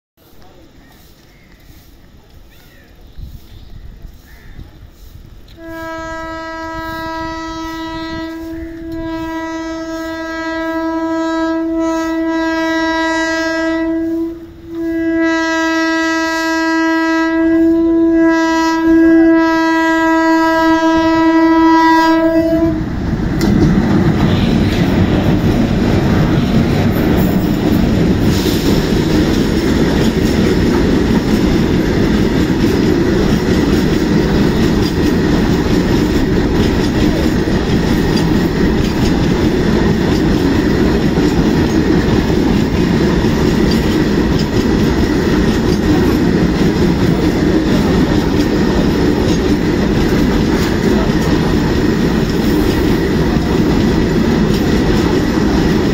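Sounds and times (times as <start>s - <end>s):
freight train running past: 0.2s - 55.9s
locomotive horn blasts: 5.5s - 22.9s.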